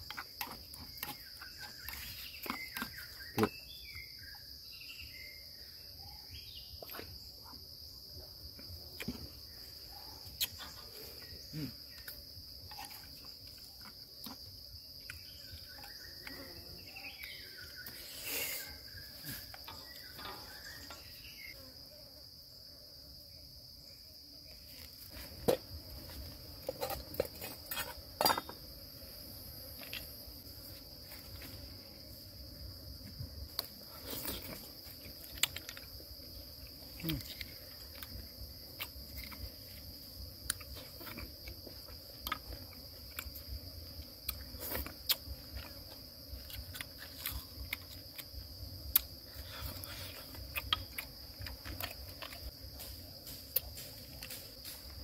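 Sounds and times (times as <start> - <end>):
insects droning: 0.0 - 55.0.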